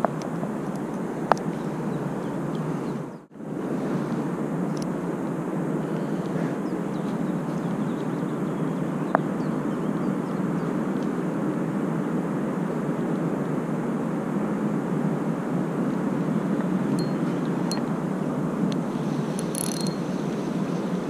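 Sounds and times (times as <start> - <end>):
wind noise on microphone: 0.0 - 21.0
sharp click: 19.4 - 20.0.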